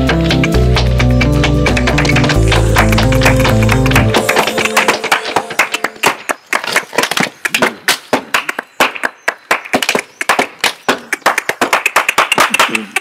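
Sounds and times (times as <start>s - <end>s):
flamenco hand claps and taps: 0.0s - 13.0s.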